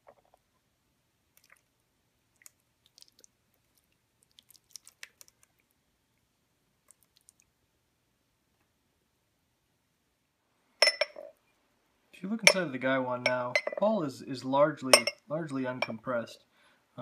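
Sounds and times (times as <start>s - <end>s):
tea splashing on tray: 2.3s - 5.6s.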